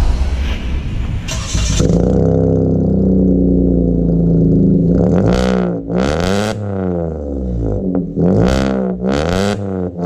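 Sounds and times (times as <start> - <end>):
short whoosh: 0.0 - 3.2
car engine running: 1.1 - 10.0.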